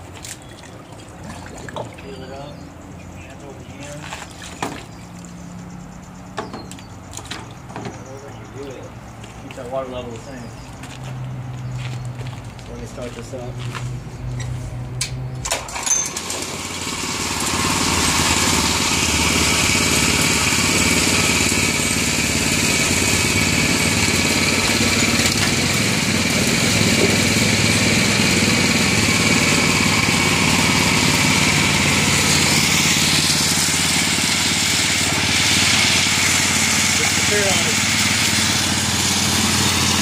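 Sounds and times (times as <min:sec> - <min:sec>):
water splashing through drum: 0:00.1 - 0:02.0
small engine running: 0:15.7 - 0:40.0.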